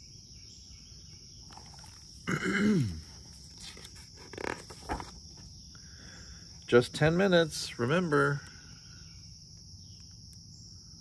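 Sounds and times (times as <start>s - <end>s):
crickets buzzing: 0.0s - 11.0s
book pages rustling: 1.5s - 2.1s, 3.2s - 5.5s.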